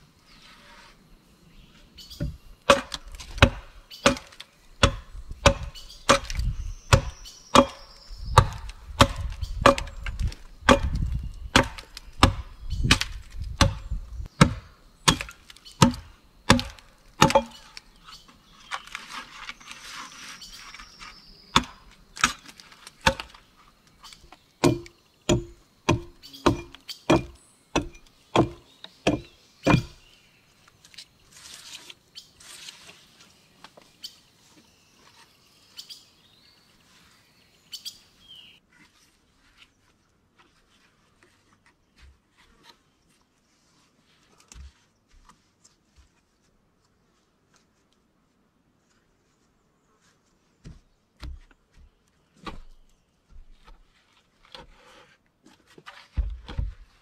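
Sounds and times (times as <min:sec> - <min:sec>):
axe chopping wood: 0:02.2 - 0:17.7, 0:21.5 - 0:22.4, 0:23.0 - 0:23.4, 0:24.6 - 0:30.0.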